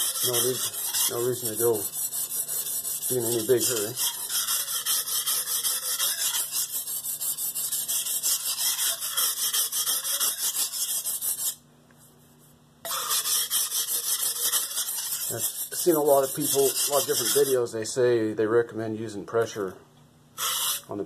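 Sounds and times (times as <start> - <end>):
knife rasping on whetstone: 0.0 - 11.6, 12.9 - 17.6, 20.4 - 20.9.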